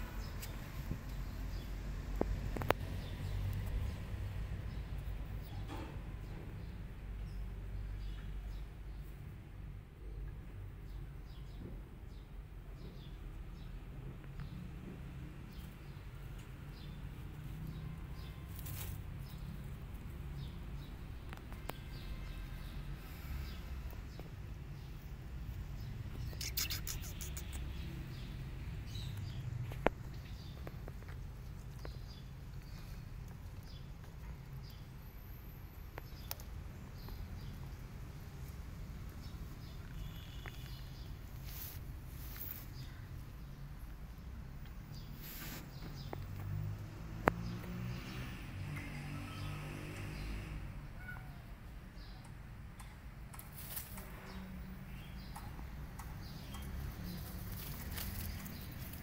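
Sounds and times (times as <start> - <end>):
small birds chirping: 0.1 - 59.0
faint short chirps: 26.3 - 27.7
faint clicks and rustles: 55.4 - 59.0.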